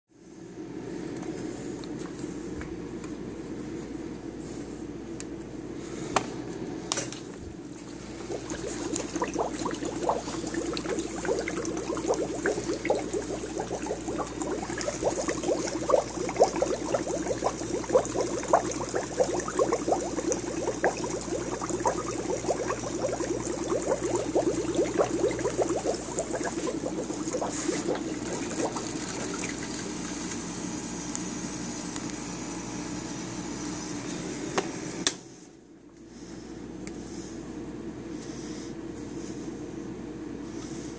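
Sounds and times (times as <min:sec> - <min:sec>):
water gurgling through pipes: 0:07.8 - 0:30.3
pump humming: 0:07.8 - 0:30.6.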